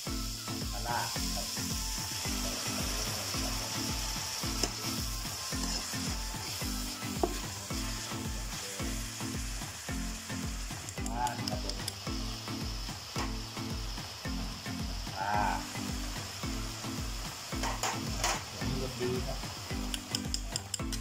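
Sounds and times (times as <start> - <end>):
paste sizzling in oil: 0.0 - 21.0
low repeating beat: 0.1 - 21.0
spatula scraping wok: 2.3 - 10.3.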